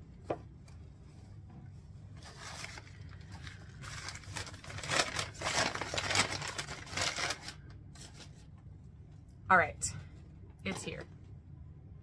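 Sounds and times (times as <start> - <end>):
paper packing crinkling: 2.1 - 8.5.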